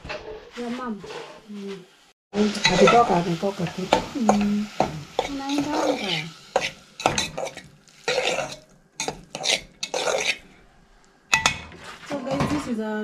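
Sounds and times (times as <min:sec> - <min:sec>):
spoon scraping in metal pot: 0:02.4 - 0:10.6
spoon clinking against pot: 0:03.9 - 0:10.4, 0:11.3 - 0:11.7.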